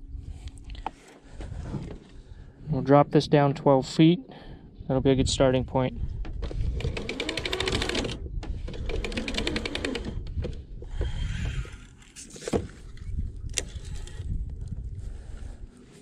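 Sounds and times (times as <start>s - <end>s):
downrigger rapid clicking: 6.6s - 10.5s.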